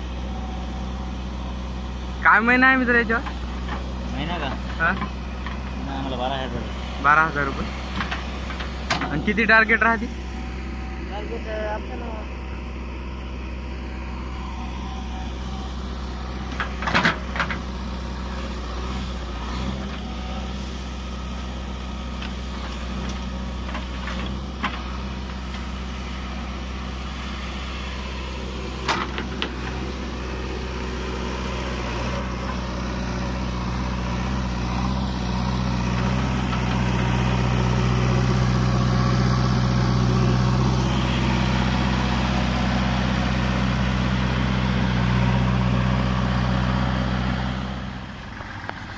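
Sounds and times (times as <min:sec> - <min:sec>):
diesel engine running: 0:00.0 - 0:48.9.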